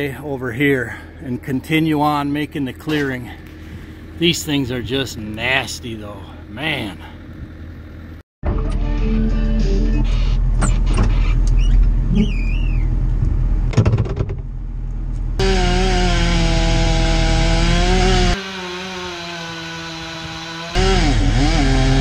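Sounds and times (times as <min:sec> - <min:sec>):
diesel engine idling: 0:00.0 - 0:08.2
knocks and clatter: 0:13.7 - 0:14.5
chainsaw cutting wood: 0:15.4 - 0:22.0.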